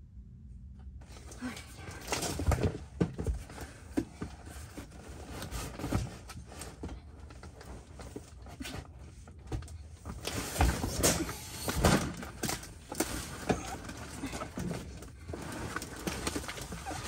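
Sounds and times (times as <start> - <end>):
boxes dragged and thumping: 2.0 - 17.0
cardboard rustling: 10.0 - 17.0.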